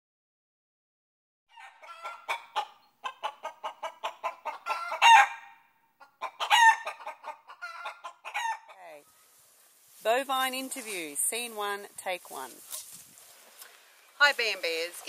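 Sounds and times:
chicken clucking: 1.5 - 9.2
chicken squawking: 1.5 - 9.3.

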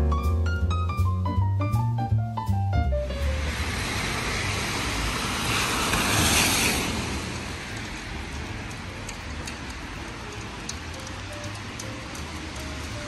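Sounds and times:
rain hiss: 3.1 - 13.0
tyre hiss on wet road: 3.1 - 13.0.

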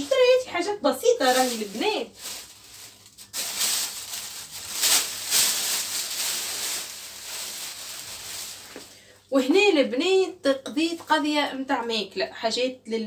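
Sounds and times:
plastic bags rustling: 0.0 - 9.1.

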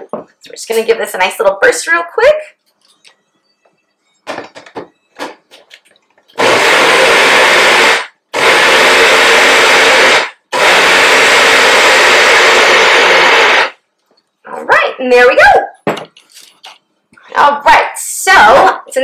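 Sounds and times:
blender motor running: 6.4 - 13.8.

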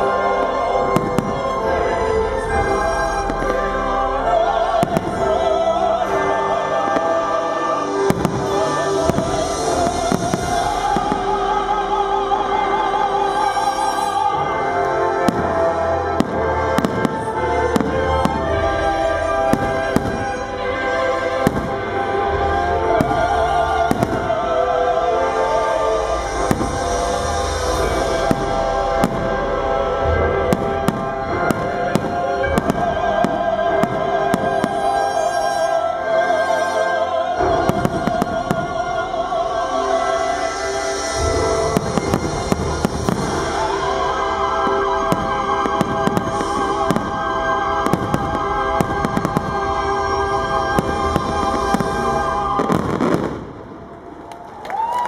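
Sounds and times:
fireworks bursting: 0.0 - 55.0
loud music: 0.0 - 55.0.

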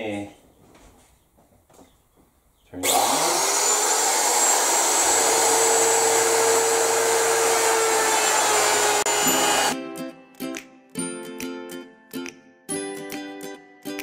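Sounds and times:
wood router motor whine: 2.8 - 9.8.

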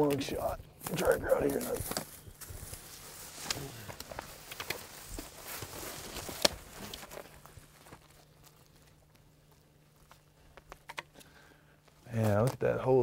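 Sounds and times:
footsteps in dry leaves: 0.8 - 10.2.

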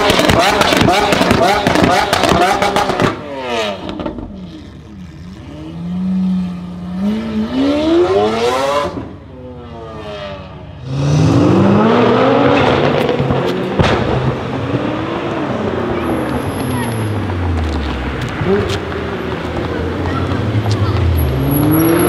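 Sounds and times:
loud car engine accelerating: 0.0 - 22.0
sports car pulling away: 9.9 - 22.0.

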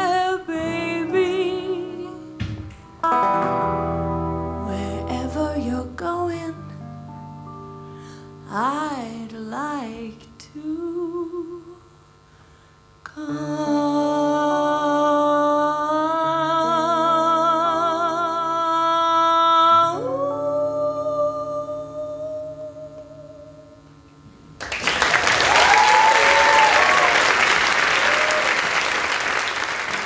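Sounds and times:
woman singing with vibrato: 0.0 - 2.4, 3.0 - 3.7, 4.4 - 6.8, 8.4 - 12.0, 13.1 - 23.9
audience applause: 24.6 - 30.0
shouted whoop: 25.3 - 28.8.

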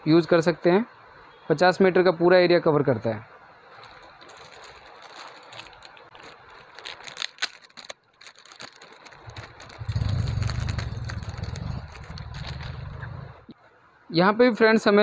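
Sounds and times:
plastic packaging crinkling: 3.7 - 13.4
low steady rumble: 9.2 - 13.5.

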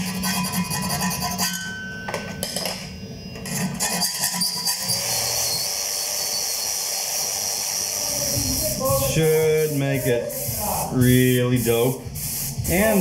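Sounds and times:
hand tools scraping on metal: 0.0 - 1.8, 3.4 - 6.6.

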